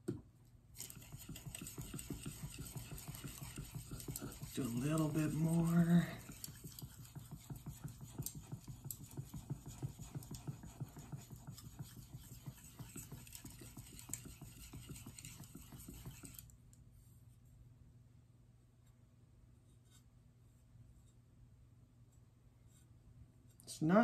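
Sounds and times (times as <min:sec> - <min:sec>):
knife scratching on whetstone: 0:00.8 - 0:16.4.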